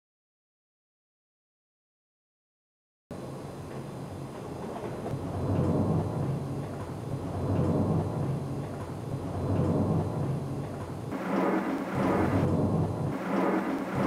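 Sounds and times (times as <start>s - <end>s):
thunder rumbling: 4.6s - 14.0s
sharp thunderclap: 5.1s - 14.0s.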